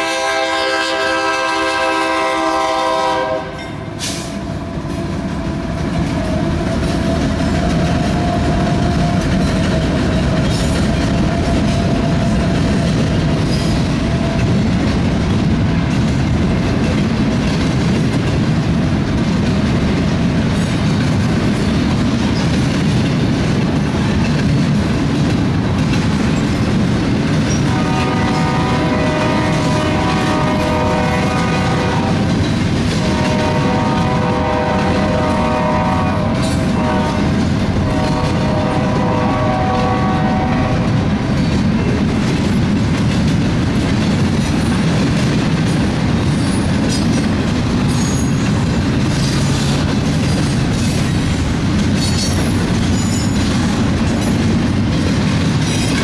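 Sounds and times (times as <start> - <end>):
locomotive air horn blasts: 0.0 - 4.4, 27.6 - 32.3, 33.0 - 41.0
train wheels rumbling on rails: 0.0 - 56.0
high wheel squeals: 47.9 - 48.6.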